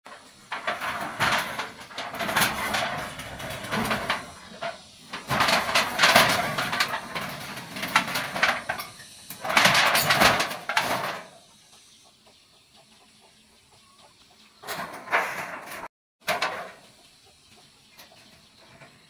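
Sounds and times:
metal roofing sheets rattling: 0.1 - 11.4, 14.6 - 16.9.

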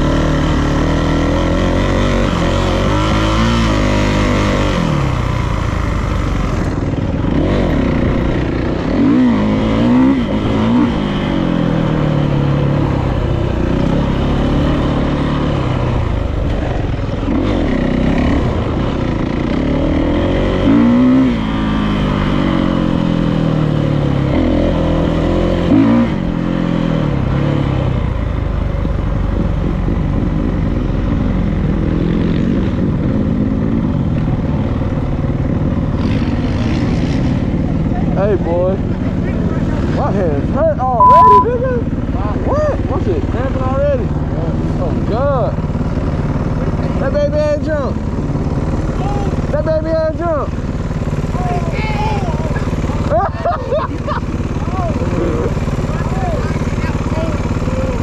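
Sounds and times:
dirt bike engine revving: 0.0 - 27.8.

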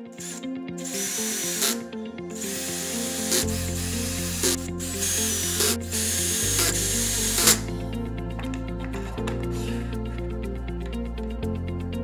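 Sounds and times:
cordless drill whirring: 0.2 - 1.8, 2.4 - 7.7.

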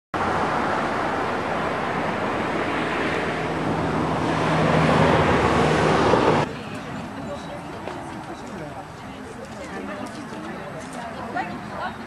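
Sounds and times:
steady rushing noise: 0.2 - 6.6.

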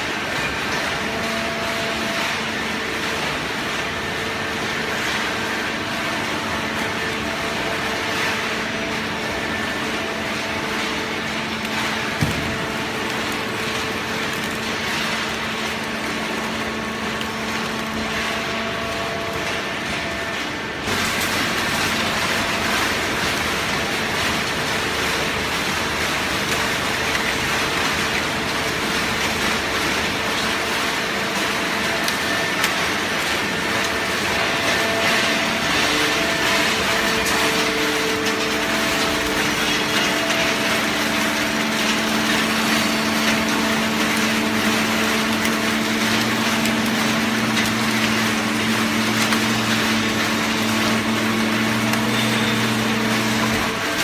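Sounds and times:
baler mechanical din: 11.8 - 13.9.

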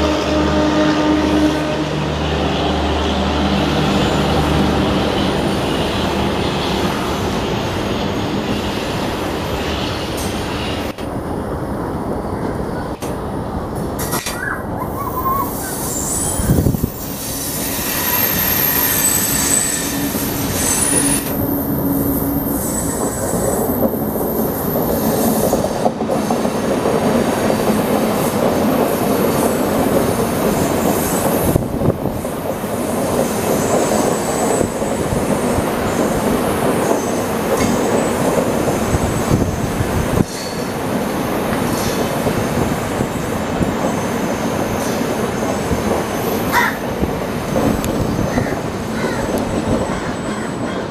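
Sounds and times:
train wheels rumbling on rails: 0.0 - 50.9
high-pitched wheel squeal: 14.4 - 23.5.

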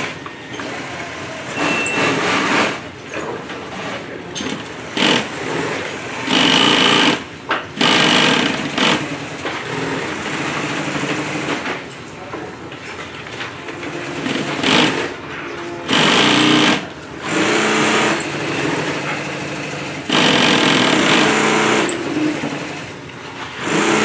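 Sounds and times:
sewing machine stitching: 4.5 - 7.2, 7.8 - 11.7, 13.8 - 15.2, 15.9 - 23.0, 23.6 - 24.0.

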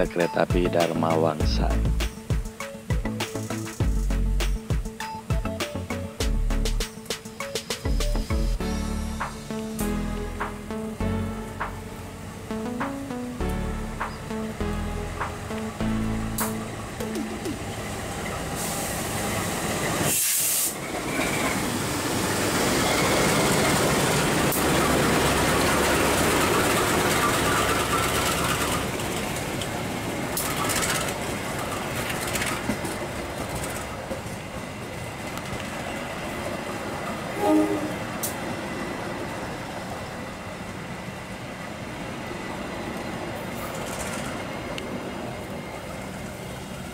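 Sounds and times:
train carriages rumbling past: 16.2 - 46.9
wheels clicking over rail joints: 23.0 - 36.6, 43.5 - 46.9
brief high-pitched tone: 37.4 - 38.1.

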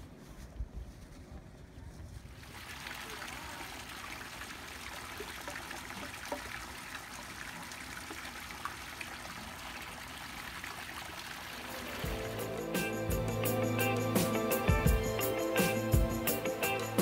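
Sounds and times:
fountain water trickling: 2.4 - 12.6.

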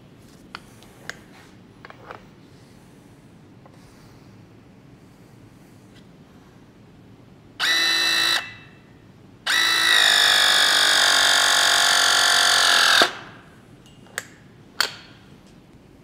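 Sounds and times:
press tool motor whine: 7.6 - 8.5, 9.5 - 13.1.

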